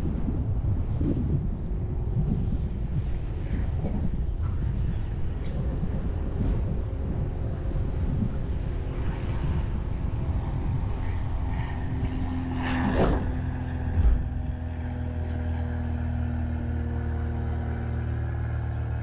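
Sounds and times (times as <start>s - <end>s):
road noise: 0.0s - 19.0s
short scraping rush: 12.8s - 14.4s
thump: 14.0s - 14.3s.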